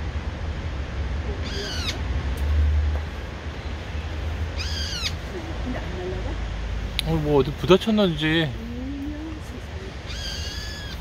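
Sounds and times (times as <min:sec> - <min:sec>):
bulbul calling: 0:01.2 - 0:02.0, 0:03.9 - 0:05.5, 0:07.9 - 0:11.0.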